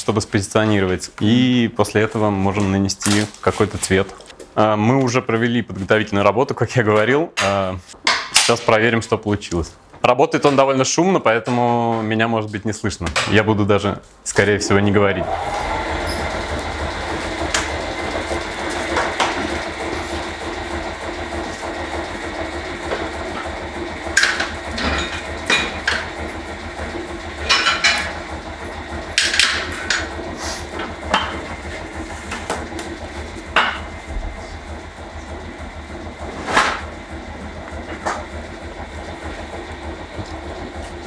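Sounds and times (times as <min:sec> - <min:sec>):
machine hum: 0:14.1 - 0:41.0.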